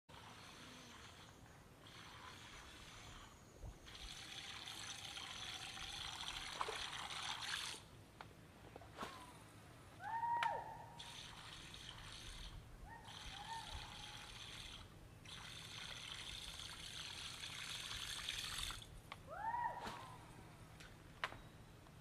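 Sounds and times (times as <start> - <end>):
wild animal whooping call: 10.0 - 11.6, 12.8 - 14.8, 19.3 - 20.2.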